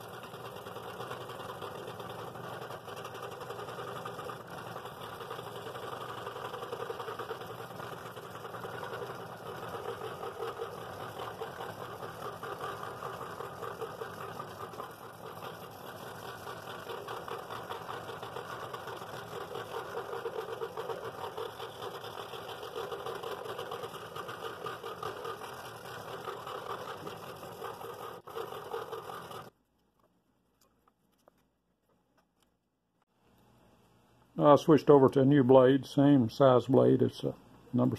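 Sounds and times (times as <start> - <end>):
scroll saw cutting wood: 0.0 - 29.6.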